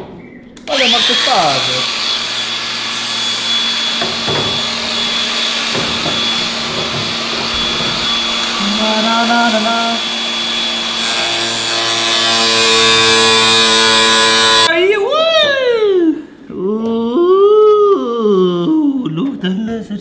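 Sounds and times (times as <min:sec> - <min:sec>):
power sander whining and rubbing: 0:00.6 - 0:14.7
loud steady buzz: 0:00.7 - 0:14.7.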